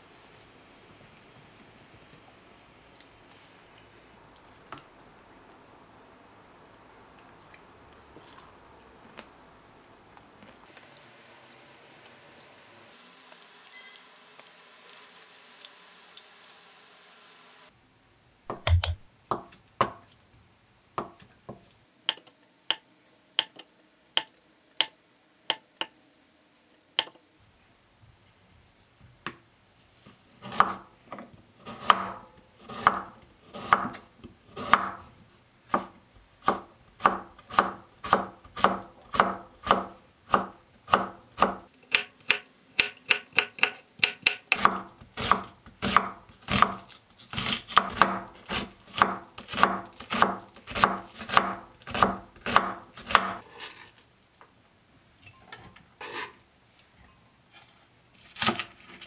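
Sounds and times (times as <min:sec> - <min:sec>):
knife chopping on wooden board: 0:18.5 - 0:19.1, 0:35.7 - 0:53.4.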